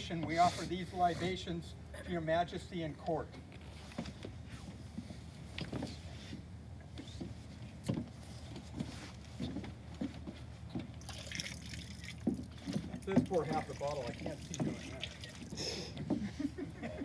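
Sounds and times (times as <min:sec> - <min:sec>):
liquid splashing on deck: 0:11.0 - 0:15.8.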